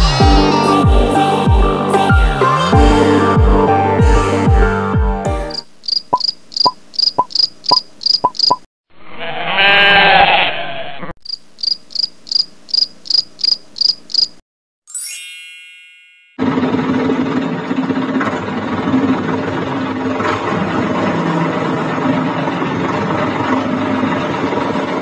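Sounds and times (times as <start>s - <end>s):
crickets chirping: 5.5s - 8.6s, 11.2s - 14.4s
short rising chime: 14.9s - 16.4s.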